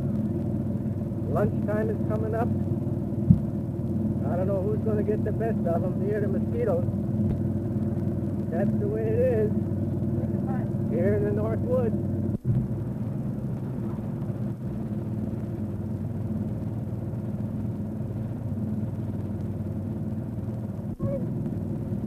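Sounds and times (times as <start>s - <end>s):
steady low background hum: 0.0s - 22.0s.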